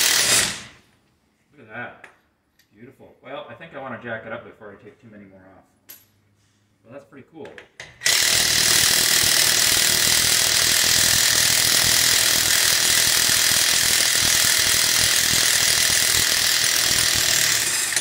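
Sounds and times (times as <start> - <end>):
impact wrench hammering: 0.0 - 0.8, 7.8 - 18.0.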